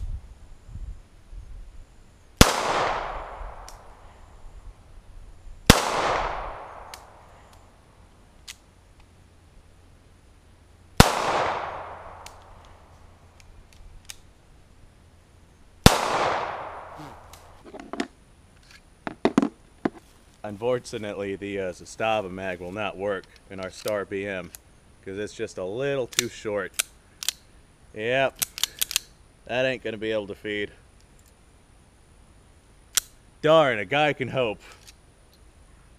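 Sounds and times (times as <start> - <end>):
pistol shots with echo: 2.4 - 4.0, 5.7 - 7.3, 11.0 - 12.6, 15.8 - 17.0.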